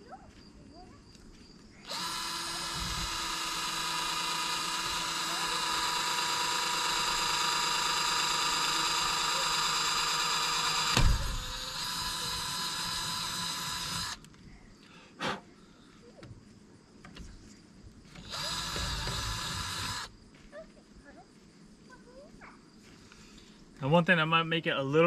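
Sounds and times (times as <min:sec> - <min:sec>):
cordless drill boring plastic pipe: 0:01.8 - 0:14.3, 0:18.2 - 0:20.1
loud thump: 0:10.9 - 0:11.6.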